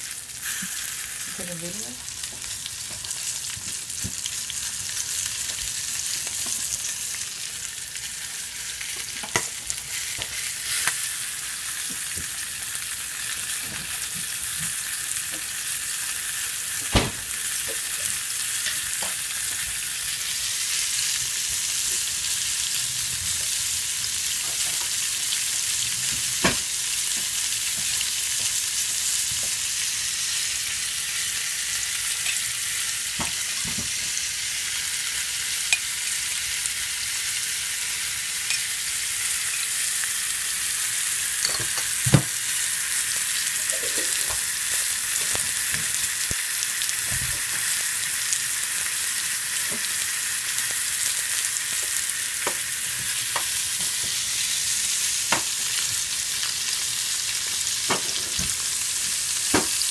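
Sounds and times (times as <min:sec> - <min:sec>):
food sizzling in pans: 0:00.0 - 0:59.9.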